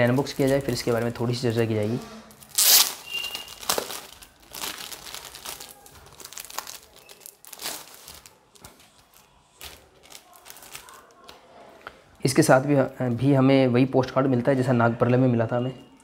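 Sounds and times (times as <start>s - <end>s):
plastic bag tearing and crinkling: 0.0s - 11.3s.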